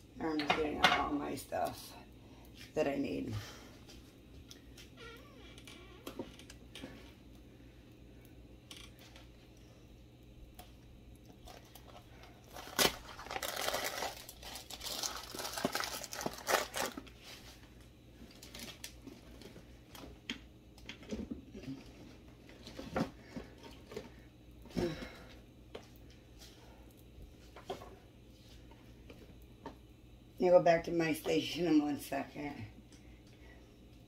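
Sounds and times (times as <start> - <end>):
plastic bag crinkling: 11.4 - 17.2, 18.3 - 19.0.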